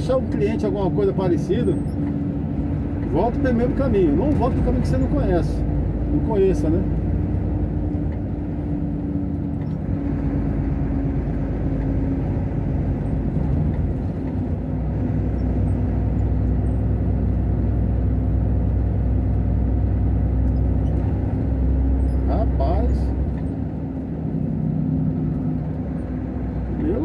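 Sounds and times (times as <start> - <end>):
vehicle engine and road noise: 0.0 - 27.0.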